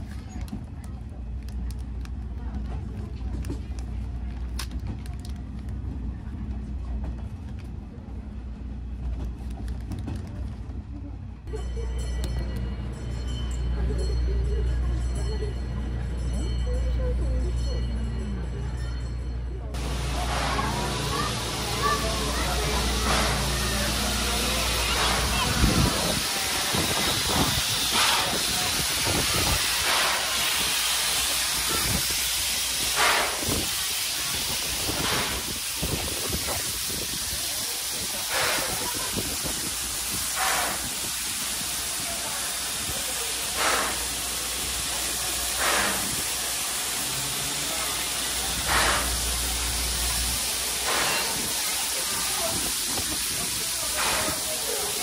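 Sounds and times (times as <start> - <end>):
steam locomotive hissing: 19.7 - 55.0
puffs of steam: 19.8 - 55.0.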